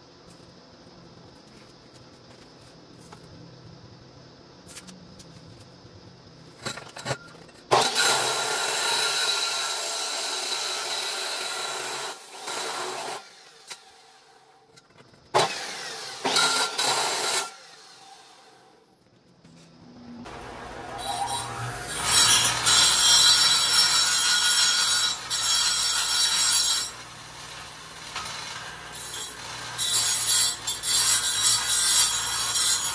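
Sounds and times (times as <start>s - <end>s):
angle grinder cutting steel: 7.7s - 14.1s, 15.4s - 18.2s, 20.3s - 32.9s.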